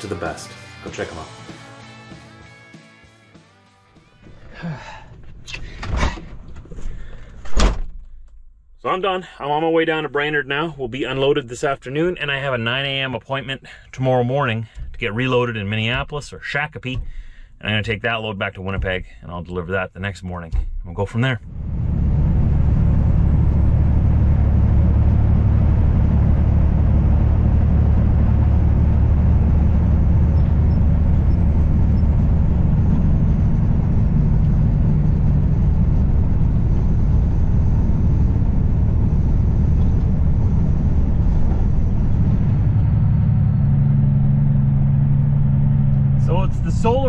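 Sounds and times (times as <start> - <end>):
road noise: 21.4 - 47.0
truck diesel engine drone: 21.4 - 47.0.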